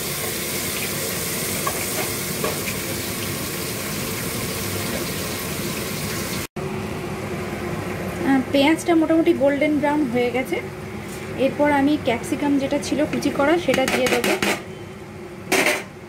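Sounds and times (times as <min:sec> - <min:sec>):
onions sizzling in oil: 0:00.0 - 0:06.5.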